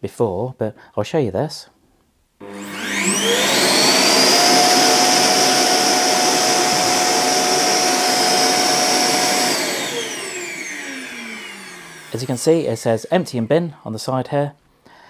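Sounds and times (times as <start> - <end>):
vacuum suction motor whining: 2.4 - 13.5.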